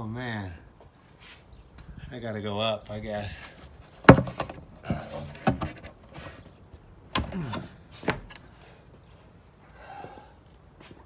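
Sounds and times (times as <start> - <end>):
wood creaking: 3.5 - 8.4
knocks on wooden boards: 4.0 - 5.8.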